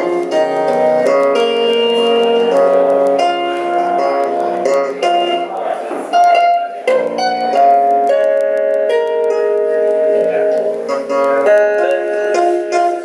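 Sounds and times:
amplified tapped string notes: 0:00.0 - 0:13.0.

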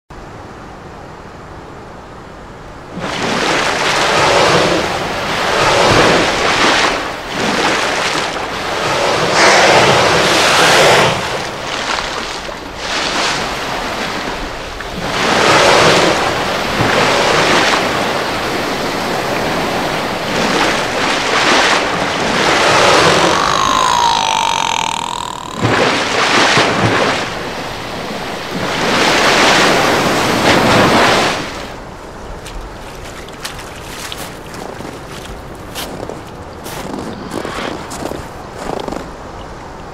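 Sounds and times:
ocean waves washing: 0:02.7 - 0:38.6
killer whale call: 0:22.3 - 0:28.3.

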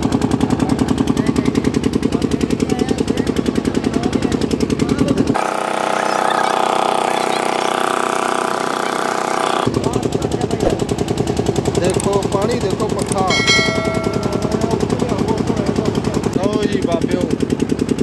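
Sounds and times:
boat engine thumping: 0:00.1 - 0:05.4, 0:09.7 - 0:18.0.

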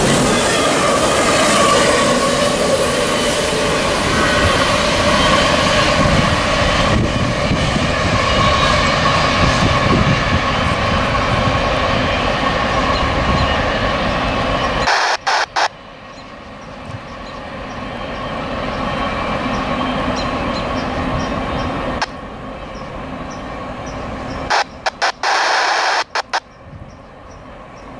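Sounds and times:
freight train rumbling on rails: 0:00.0 - 0:27.9.

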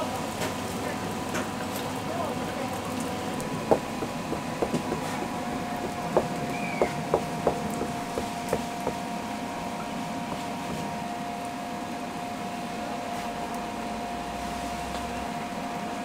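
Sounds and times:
steady high hum: 0:00.0 - 0:16.0
cleaver knocking on wooden board: 0:03.6 - 0:09.1.

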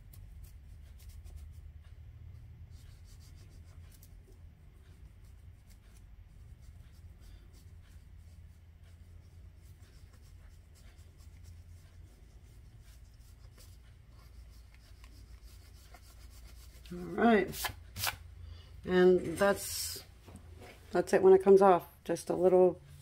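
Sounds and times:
fingertips rubbing paper: 0:00.0 - 0:02.0, 0:02.6 - 0:18.2
low steady hum: 0:00.0 - 0:23.0.

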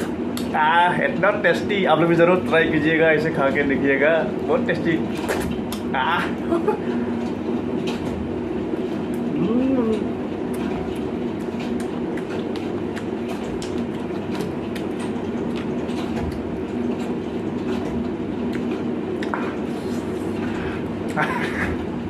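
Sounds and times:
low mechanical hum: 0:00.0 - 0:22.0
person chewing: 0:08.8 - 0:21.2.

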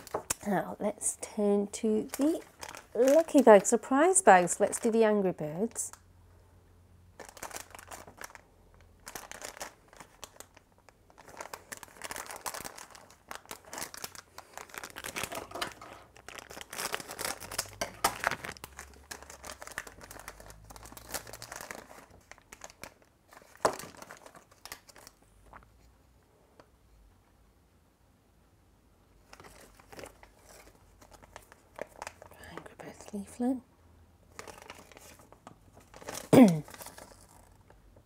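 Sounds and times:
plastic packet crinkling and tearing: 0:02.0 - 0:05.1, 0:07.1 - 0:25.6, 0:29.2 - 0:33.4, 0:34.3 - 0:37.9.

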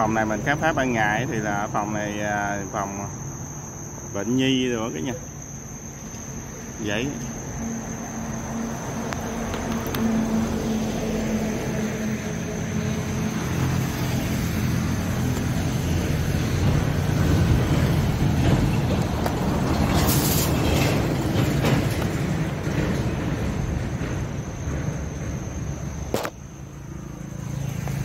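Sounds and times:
crickets chirring: 0:00.0 - 0:28.0
large vehicle passing: 0:07.5 - 0:26.0.

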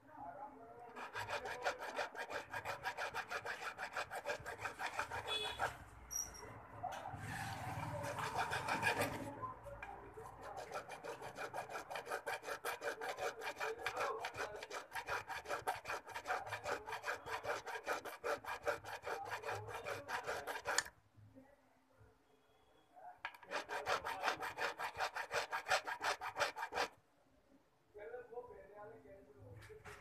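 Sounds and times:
hand file rasping on metal: 0:00.9 - 0:06.5, 0:07.2 - 0:20.9, 0:23.3 - 0:27.0.

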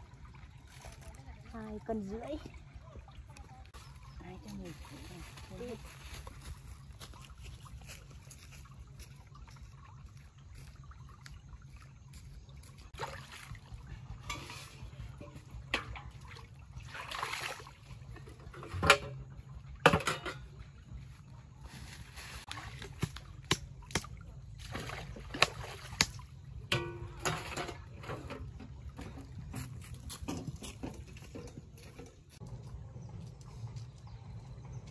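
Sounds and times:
water splashing and pouring: 0:00.0 - 0:33.8
knocks on basin and bucket: 0:19.8 - 0:20.6.

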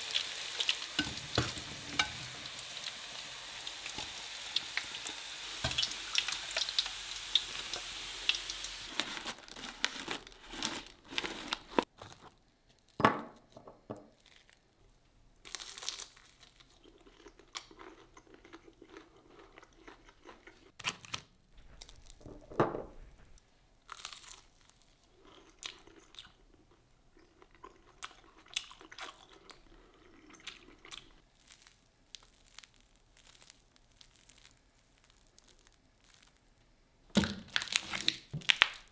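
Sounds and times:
nuggets sizzling in oil: 0:00.0 - 0:09.4, 0:31.3 - 0:36.6
crunching bites and chewing: 0:15.5 - 0:22.2, 0:23.9 - 0:26.4, 0:30.4 - 0:36.6
crust crackling pulled apart: 0:31.4 - 0:36.6.

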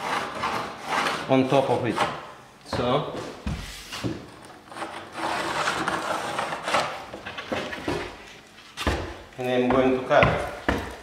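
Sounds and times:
wood scraping against stair: 0:03.1 - 0:09.1.

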